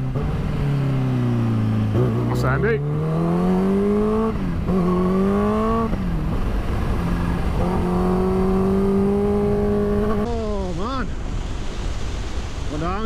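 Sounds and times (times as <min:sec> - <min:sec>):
motorcycle engine accelerating: 0:00.0 - 0:10.3
wind rushing: 0:00.4 - 0:13.0.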